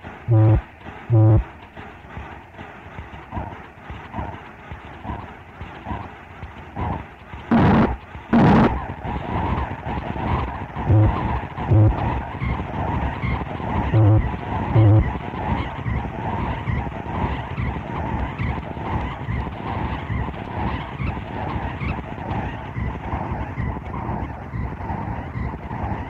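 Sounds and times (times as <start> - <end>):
distorted electronic noise: 0.3 - 1.4, 7.5 - 8.8, 10.9 - 12.2, 14.0 - 15.1.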